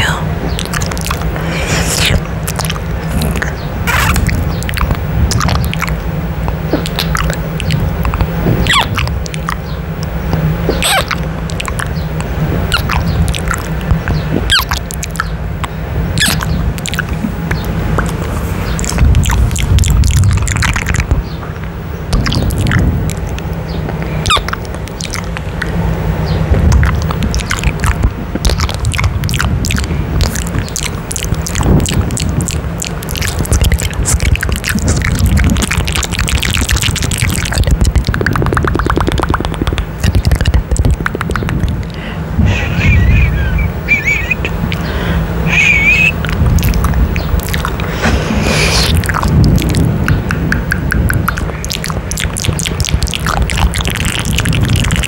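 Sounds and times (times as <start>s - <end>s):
close breath rumble: 0.0s - 9.6s, 22.2s - 25.9s, 26.5s - 43.5s, 44.5s - 55.0s
wet kissing and lip-smacking: 0.0s - 25.8s, 26.5s - 42.0s, 45.5s - 55.0s.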